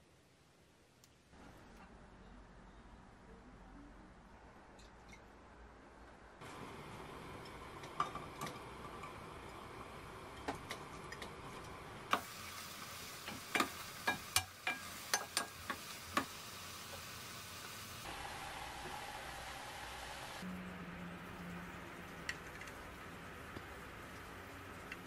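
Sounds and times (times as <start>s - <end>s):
sauce sizzling: 11.7s - 20.6s, 21.2s - 25.0s.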